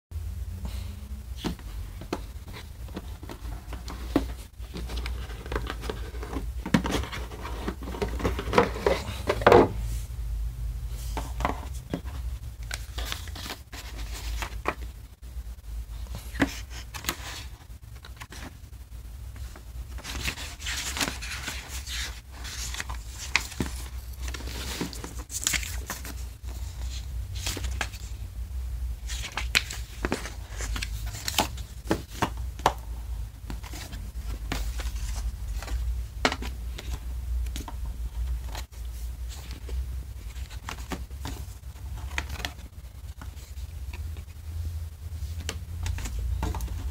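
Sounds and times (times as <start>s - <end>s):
booklet pages rustling: 1.4s - 9.7s, 11.0s - 15.1s, 15.9s - 18.6s, 19.3s - 28.2s, 29.0s - 46.9s
box lid scraping and knocking: 2.9s - 9.8s.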